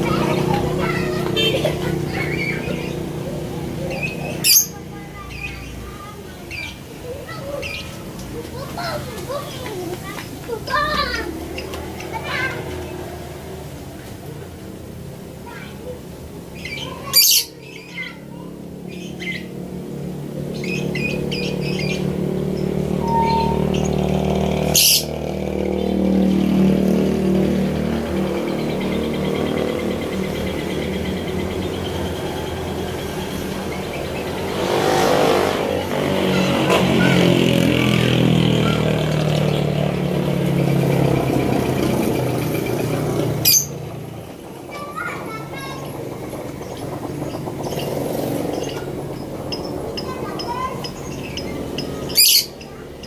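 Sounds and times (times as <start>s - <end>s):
lovebird squawking and chirping: 1.9s - 3.2s, 3.8s - 5.8s, 16.6s - 18.2s, 20.5s - 25.2s, 43.4s - 43.8s, 47.3s - 53.0s
low engine hum: 18.0s - 53.0s.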